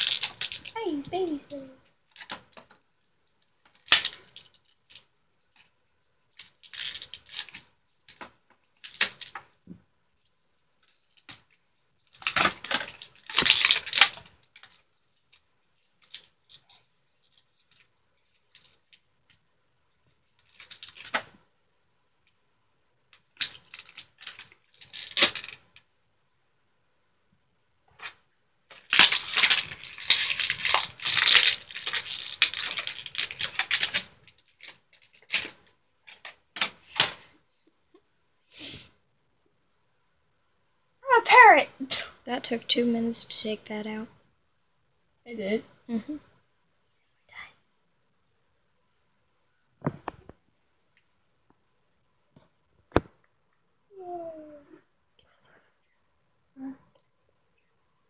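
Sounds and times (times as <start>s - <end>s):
plastic packaging crackling: 0.0s - 0.8s, 6.3s - 8.2s, 12.1s - 14.8s, 23.4s - 25.6s, 28.7s - 37.2s.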